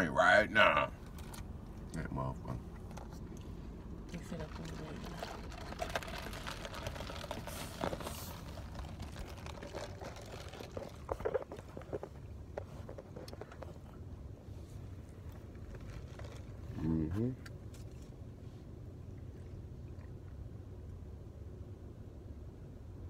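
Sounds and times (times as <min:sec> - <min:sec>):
ice rattling in plastic cup: 0:04.4 - 0:12.1.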